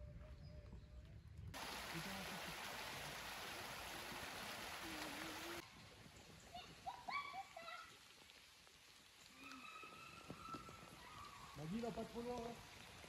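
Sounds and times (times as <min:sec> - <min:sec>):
rushing stream water: 0:01.6 - 0:05.6.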